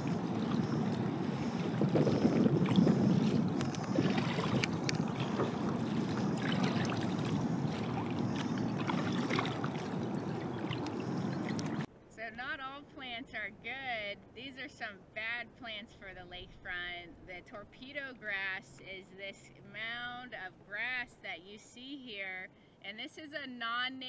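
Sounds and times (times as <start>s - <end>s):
kayak paddle splashing in water: 0.0s - 11.9s.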